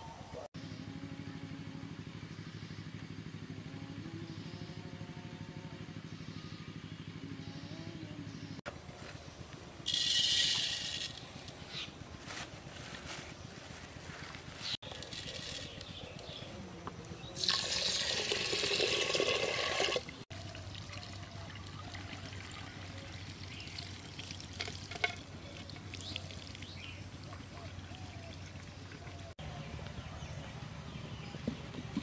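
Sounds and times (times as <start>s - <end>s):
water sloshing in a clay pot: 17.4s - 29.3s.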